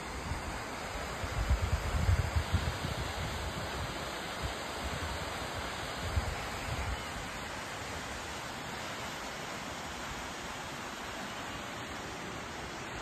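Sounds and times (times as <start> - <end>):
waterfall rushing: 3.1 - 13.0.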